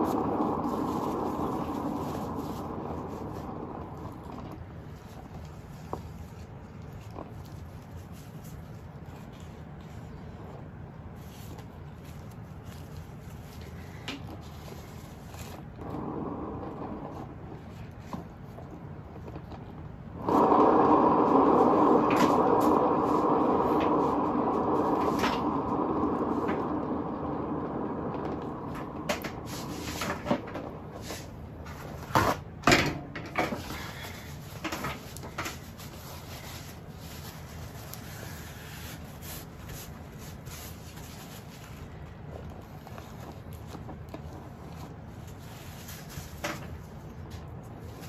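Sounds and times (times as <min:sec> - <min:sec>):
turntable rolling hum: 0:00.0 - 0:05.3, 0:15.3 - 0:32.5.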